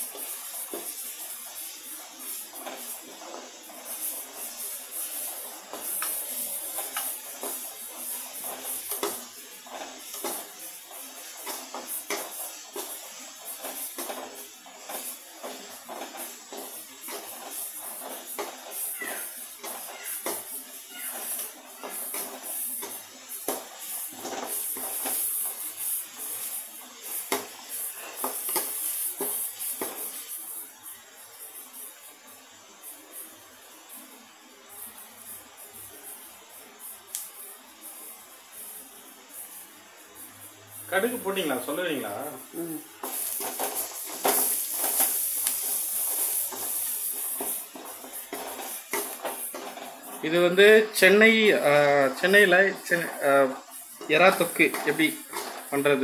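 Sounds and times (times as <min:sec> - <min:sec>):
onion and garlic sizzling in oil: 0:00.0 - 0:56.0.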